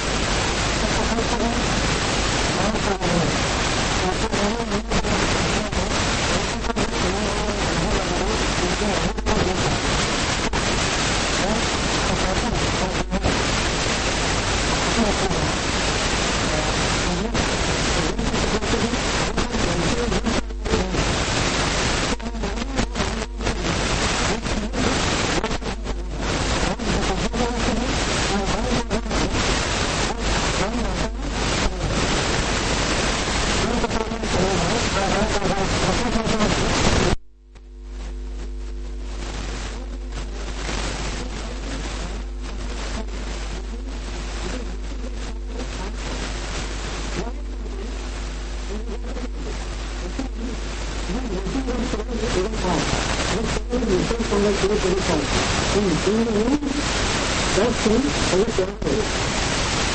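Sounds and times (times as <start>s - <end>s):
low electrical hum: 0.0s - 59.9s
recording hiss: 0.0s - 59.9s
voice cut off: 39.4s - 59.4s.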